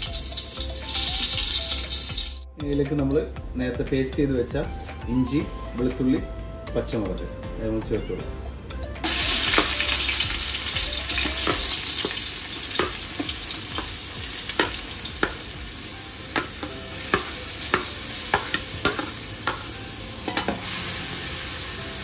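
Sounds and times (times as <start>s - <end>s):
paste sizzling in hot ghee: 0.0s - 2.5s, 9.0s - 22.0s.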